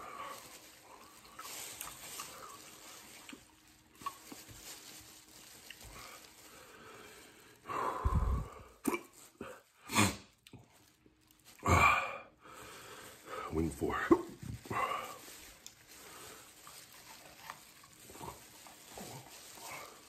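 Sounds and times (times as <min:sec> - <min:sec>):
eating noises: 0:00.0 - 0:04.6, 0:13.2 - 0:20.0
man breathing hard: 0:06.0 - 0:08.8, 0:11.7 - 0:13.6.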